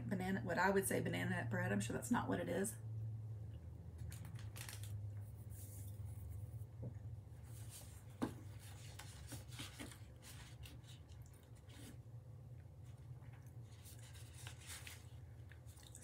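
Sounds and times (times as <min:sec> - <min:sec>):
low steady hum: 0:00.0 - 0:16.0
snack packaging crinkling: 0:04.0 - 0:05.2.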